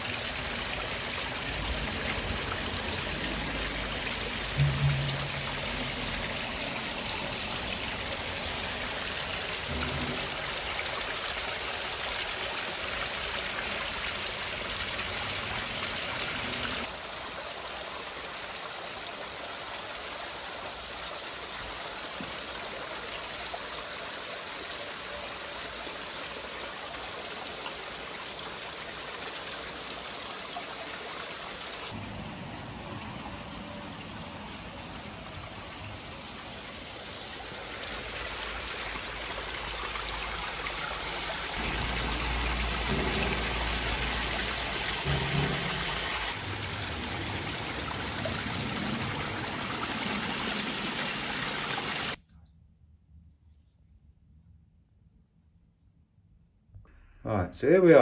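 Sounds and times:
water splashing onto stones: 0.0 - 20.0, 33.1 - 52.2.

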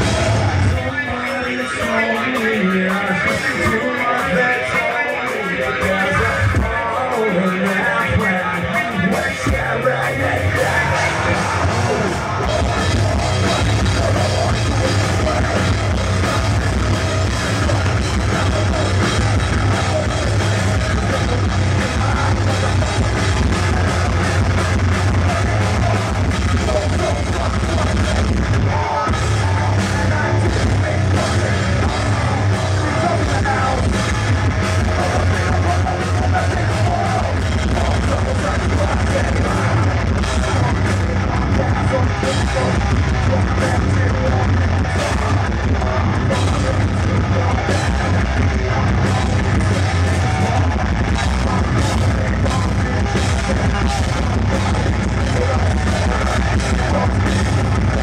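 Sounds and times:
bass guitar: 0.0 - 58.0
distorted electric guitars: 0.0 - 58.0
drum kit: 0.0 - 58.0.

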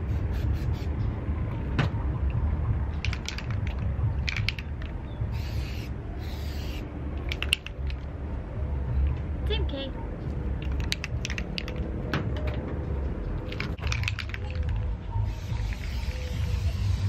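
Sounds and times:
spray paint can hissing: 0.0 - 0.9, 5.3 - 7.7, 14.2 - 17.0
steady low rumble: 0.0 - 17.0.

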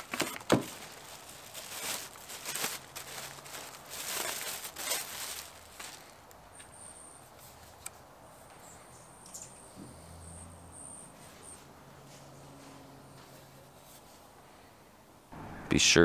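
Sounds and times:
faint high chirping: 6.5 - 7.3, 8.5 - 11.7.

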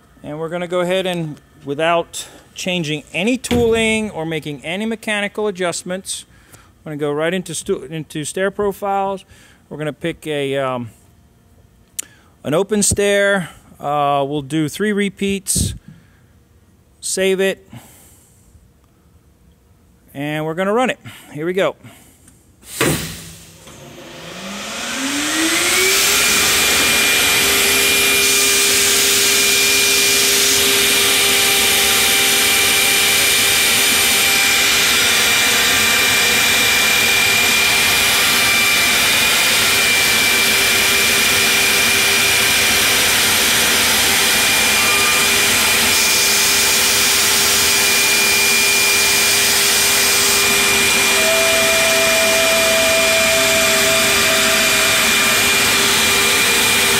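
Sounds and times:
router bit cutting wood: 23.6 - 56.9
router spindle motor whine: 23.6 - 56.9.

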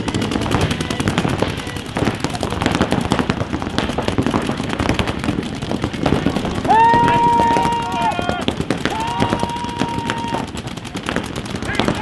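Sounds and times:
paintball markers firing rapidly: 0.0 - 12.0.

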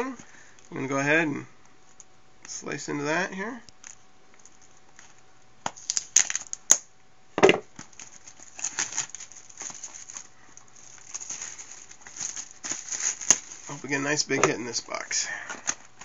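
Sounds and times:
cellophane crackling and ripping: 5.0 - 6.8, 7.8 - 16.0.

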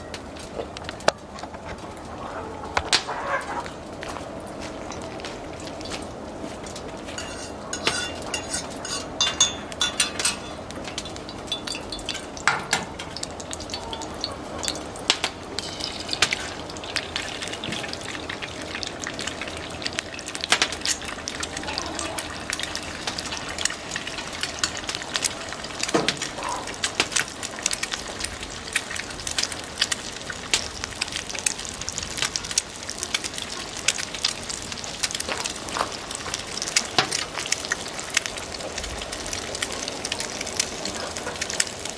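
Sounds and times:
burning wood crackling: 0.0 - 41.9
egg sizzling in a frying pan: 2.9 - 41.9
fork scraping and clinking in pan: 7.1 - 10.6, 15.6 - 16.4.

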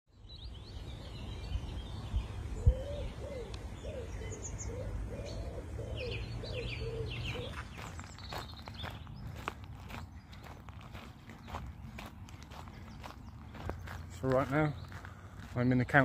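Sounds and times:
small birds chirping: 0.1 - 16.0
bird cooing: 2.6 - 7.9
footsteps on gravel: 7.3 - 16.0.

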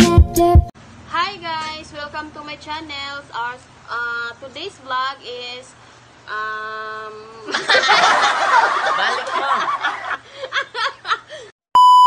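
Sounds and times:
woman and children laughing: 7.3 - 11.5.

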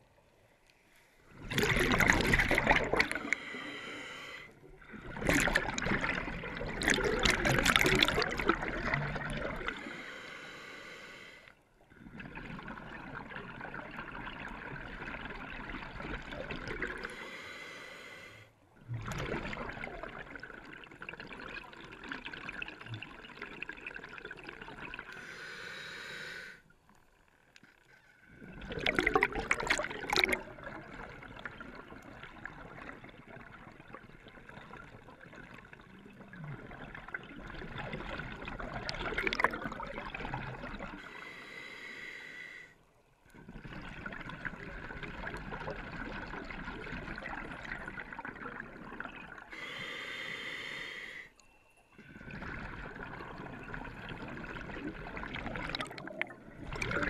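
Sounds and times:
exhaled bubbles bursting: 1.3 - 3.5, 4.8 - 9.8, 11.9 - 17.1, 18.8 - 25.2, 28.3 - 41.0, 43.3 - 49.6, 52.0 - 57.0
regulator breathing hiss: 17.1 - 18.5, 25.2 - 26.6, 41.1 - 42.8, 49.5 - 51.4.

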